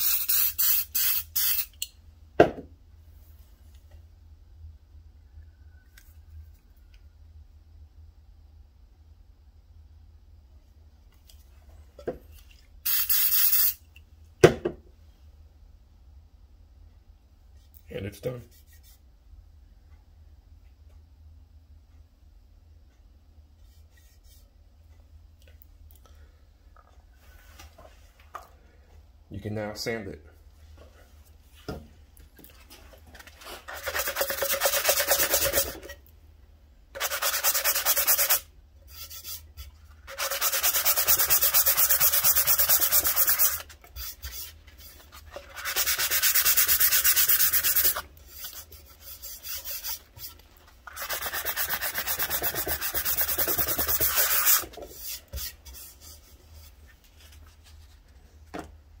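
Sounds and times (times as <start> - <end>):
sanding sponge rubbing wood: 37.0 - 39.4, 40.1 - 50.3, 50.9 - 56.4.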